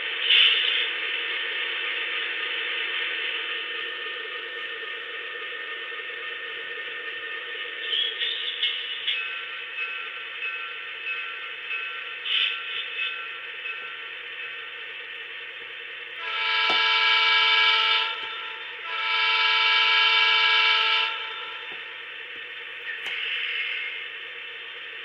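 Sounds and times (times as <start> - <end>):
diesel chime air horn: 16.2 - 21.7.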